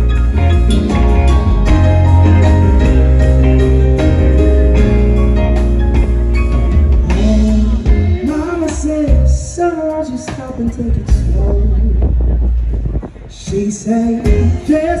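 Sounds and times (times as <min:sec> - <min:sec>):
live band music: 0:00.0 - 0:15.0
man singing: 0:07.0 - 0:15.0.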